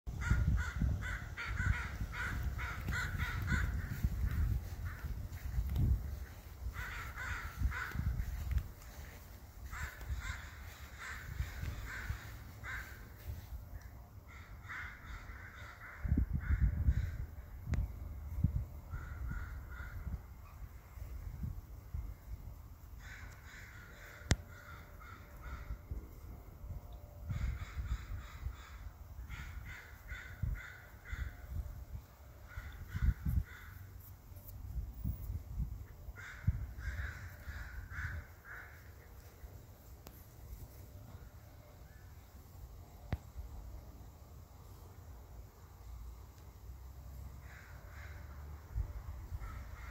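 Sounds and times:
bird cawing: 0.1s - 13.5s, 14.2s - 17.3s, 18.9s - 20.2s, 23.0s - 25.9s, 27.3s - 31.6s, 32.4s - 34.1s, 36.2s - 39.1s, 47.3s - 48.6s, 49.4s - 49.9s
low rumble on microphone: 0.1s - 13.7s.

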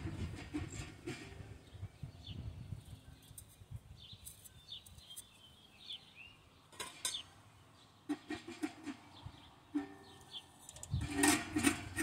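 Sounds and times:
metal pipe sections clinking: 9.8s - 12.0s.

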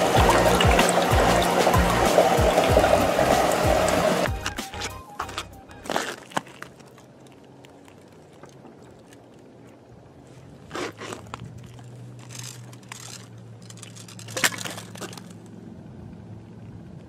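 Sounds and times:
ice cracking: 0.0s - 9.7s, 10.6s - 15.4s
ice crunching and crackling: 4.2s - 15.6s.

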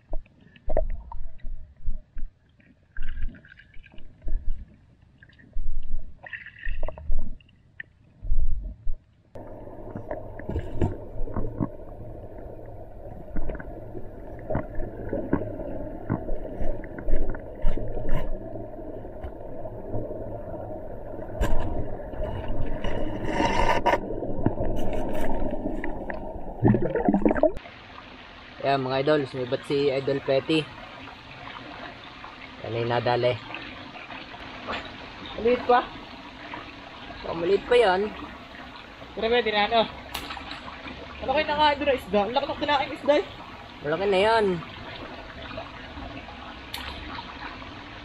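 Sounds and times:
underwater water rush: 9.4s - 48.0s
knocks and scrapes on canal bottom: 21.4s - 26.2s.

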